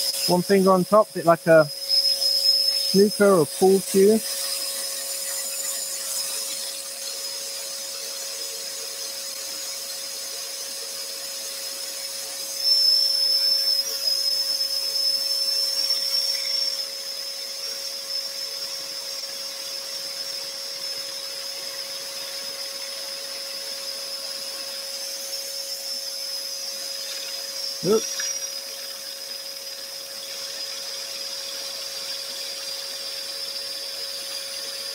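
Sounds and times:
scroll saw cutting wood: 0.0s - 11.6s.

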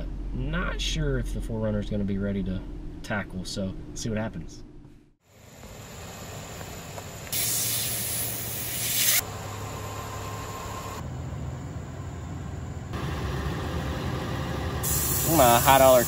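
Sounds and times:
air hissing from tyre valve: 7.3s - 9.2s, 14.8s - 16.0s.

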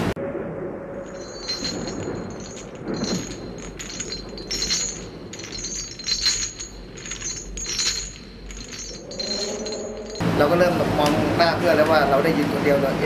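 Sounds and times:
metal chains clinking: 1.0s - 10.3s.

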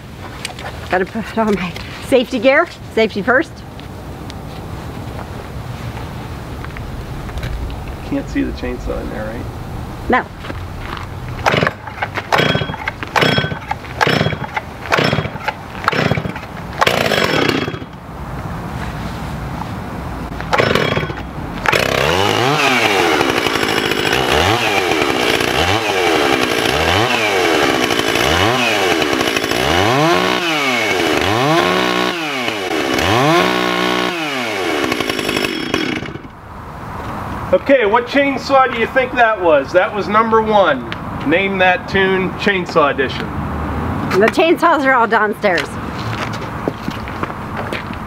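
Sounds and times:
chainsaw starting and revving: 11.4s - 18.0s, 20.5s - 36.3s.

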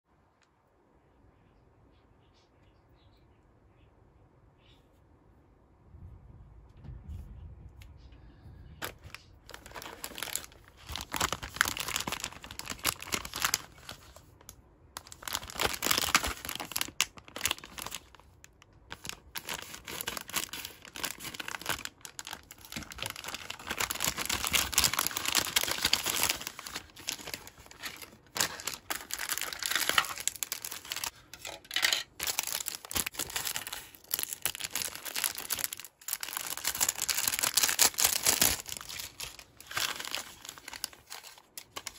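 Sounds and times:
plastic bag tearing: 8.8s - 14.3s, 15.0s - 18.3s, 18.9s - 41.9s
plastic packaging crinkling: 8.8s - 41.9s.

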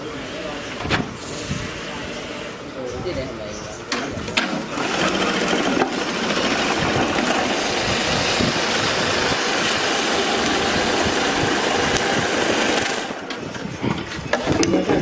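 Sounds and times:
sewing machine running: 4.5s - 13.3s.

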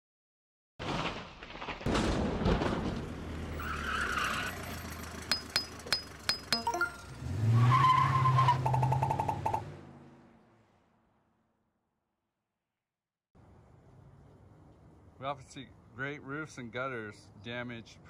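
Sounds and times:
vehicle running with a squeal: 3.6s - 9.6s
sharp metallic clinks: 5.2s - 7.1s.

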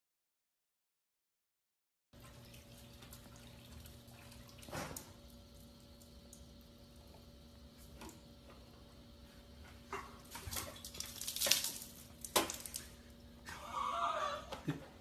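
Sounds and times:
faint steady hum: 2.2s - 15.0s.

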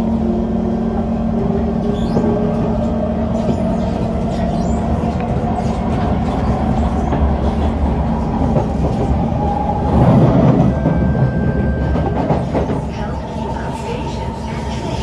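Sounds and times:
train wheels rumbling on rail: 0.0s - 15.0s
clickety-clack of rails: 1.4s - 15.0s.

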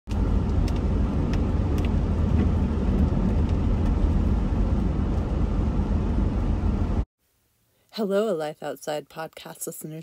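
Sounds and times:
car driving on wet road: 0.1s - 7.0s.

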